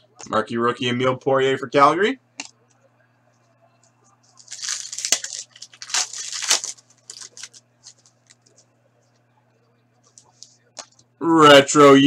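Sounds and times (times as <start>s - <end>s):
foil pack tearing and crinkling: 4.4s - 8.4s.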